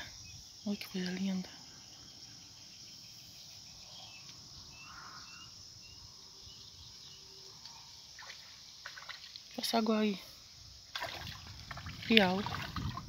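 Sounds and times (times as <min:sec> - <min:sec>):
crickets droning: 0:00.0 - 0:13.0
bird chirps: 0:02.0 - 0:08.2
faint water splash: 0:08.1 - 0:09.7, 0:10.9 - 0:13.0.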